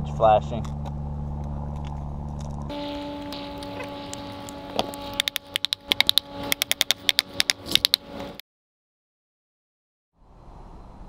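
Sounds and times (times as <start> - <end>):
steady hum: 0.7 - 8.4
metal flashing crackling: 2.7 - 8.4.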